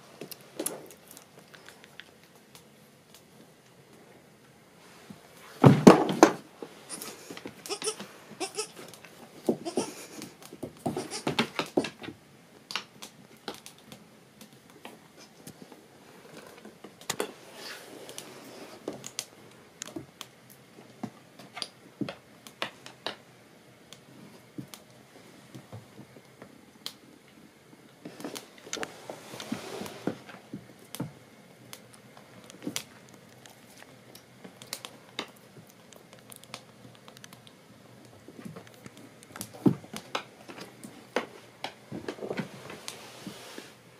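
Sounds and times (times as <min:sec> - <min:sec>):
animals moving on wooden floor: 0:05.1 - 0:20.2.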